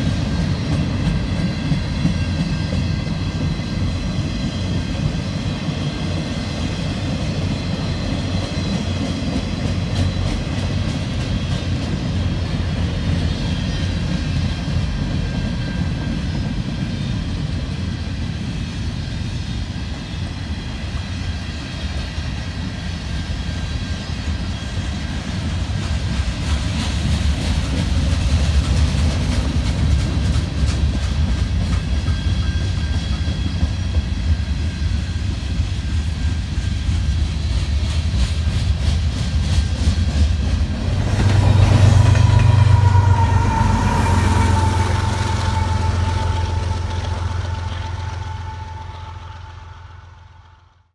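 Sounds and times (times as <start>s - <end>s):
steel wheels rumbling on rail: 0.0s - 50.9s
faint high ringing: 42.2s - 50.9s.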